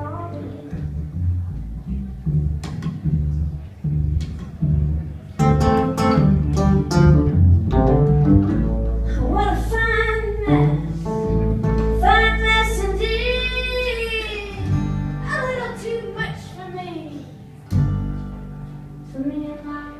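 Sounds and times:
guitar picked notes: 0.0s - 19.9s
upright bass: 0.0s - 19.9s
woman singing: 12.0s - 16.7s, 19.1s - 19.9s.

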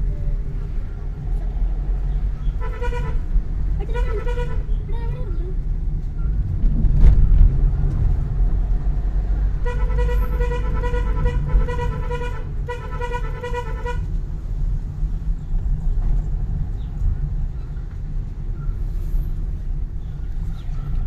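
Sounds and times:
car engine and tyres rumbling: 0.0s - 21.0s
car horn blasts: 2.5s - 4.8s, 9.6s - 14.1s.

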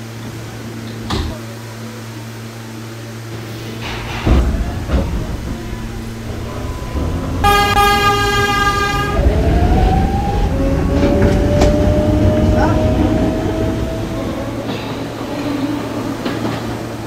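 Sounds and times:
train rumble: 0.0s - 17.0s
traction motors whining: 3.0s - 17.0s
subway train horn: 5.4s - 17.0s.

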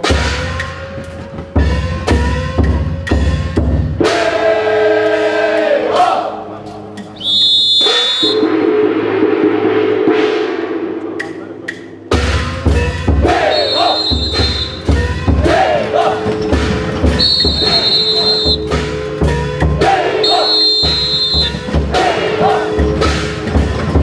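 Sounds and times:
drum beating steadily: 0.0s - 4.4s, 10.1s - 24.0s
people shouting calls: 7.2s - 8.5s, 13.2s - 16.2s, 17.2s - 18.7s, 19.8s - 21.7s
sharp whistle blast: 7.2s - 8.6s, 13.5s - 14.9s, 17.2s - 18.7s, 20.2s - 21.6s.

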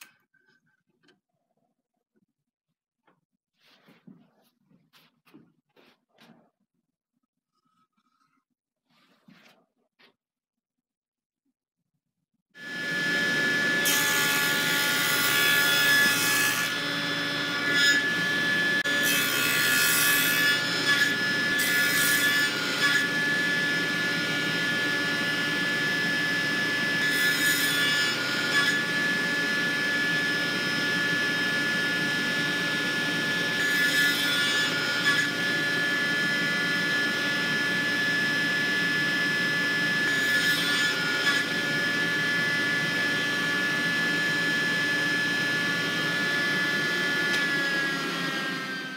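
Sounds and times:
saw blade cutting wood: 12.6s - 38.0s, 40.0s - 44.2s
table saw motor hum: 12.6s - 48.9s.

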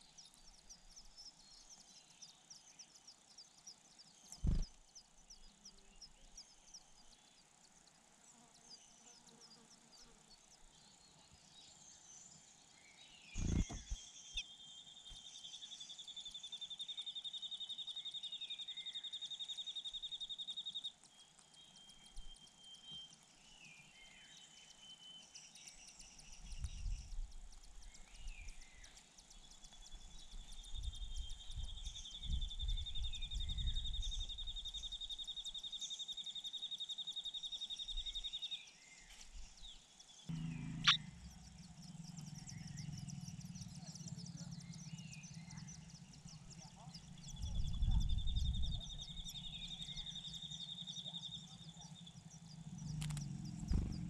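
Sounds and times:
sharp thud: 4.4s - 4.7s.

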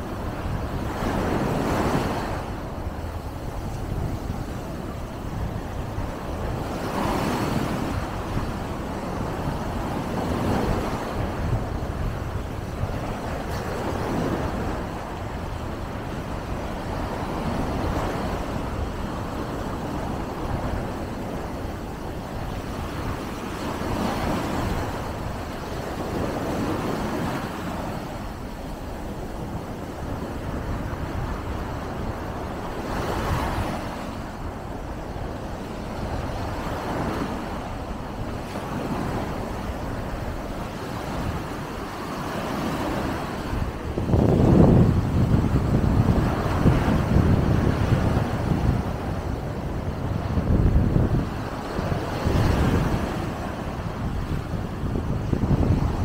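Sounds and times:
small waves washing on beach: 0.0s - 56.0s
wind rumbling on microphone: 0.0s - 56.0s.

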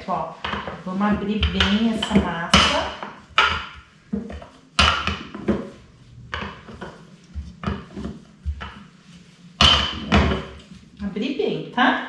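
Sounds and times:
rolling pin rubbing on dough: 0.0s - 11.3s
rolling pin knocking on stone: 0.4s - 8.8s, 9.6s - 10.6s.

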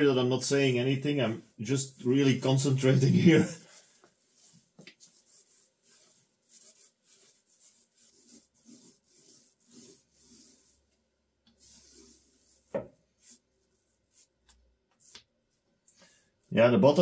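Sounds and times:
paint roller rubbing on wood: 0.5s - 10.9s, 11.5s - 14.4s.

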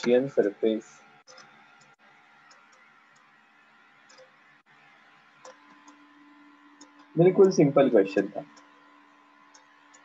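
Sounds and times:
stylus tapping on tablet screen: 5.4s - 6.0s.

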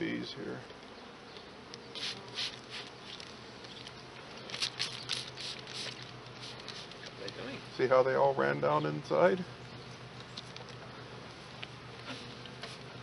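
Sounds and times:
bees humming: 0.0s - 13.0s
spray bottle squirting: 1.9s - 7.2s, 12.1s - 13.0s.

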